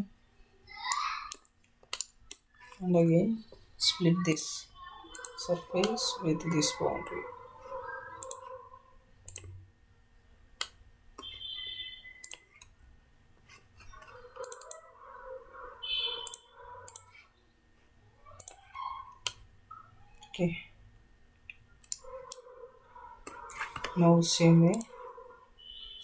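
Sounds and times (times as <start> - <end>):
computer mouse clicking: 1.3 - 2.8, 5.1 - 6.7, 8.2 - 8.5, 9.3 - 9.5, 12.2 - 12.7, 14.0 - 14.8, 16.2 - 17.2, 18.4 - 19.4, 21.5 - 22.4, 23.2 - 24.0, 24.7 - 25.0.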